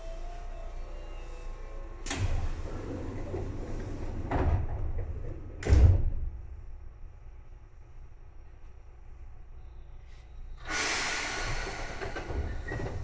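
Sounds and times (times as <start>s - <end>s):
train doors thudding with air rush: 1.5s - 6.6s, 10.6s - 13.0s.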